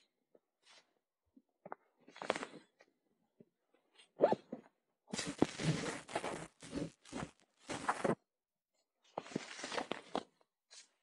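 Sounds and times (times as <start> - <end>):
rustling and crunching: 5.1 - 8.2.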